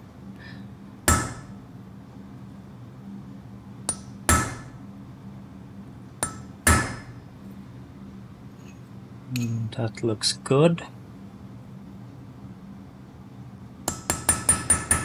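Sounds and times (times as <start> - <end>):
hammer striking chisel: 1.1 - 1.5, 3.9 - 4.7, 6.2 - 7.1, 13.9 - 15.0.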